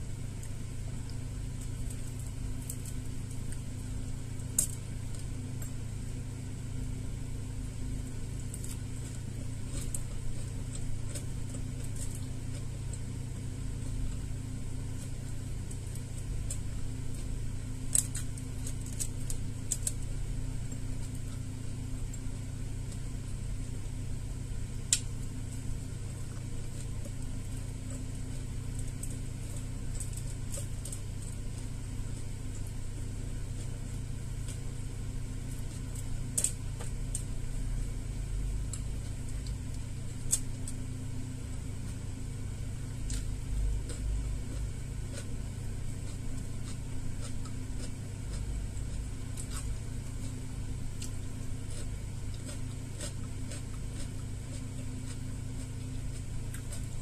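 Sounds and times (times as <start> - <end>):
low mechanical hum: 0.0 - 57.0
eating and chewing smacks: 8.2 - 24.0, 42.8 - 57.0.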